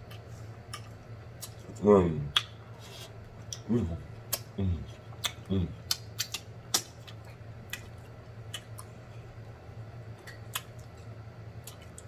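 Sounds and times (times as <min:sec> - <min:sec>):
faint low hum: 0:00.0 - 0:12.0
mouth clicks and lip smacks: 0:02.3 - 0:02.6, 0:03.4 - 0:08.9, 0:10.2 - 0:11.0.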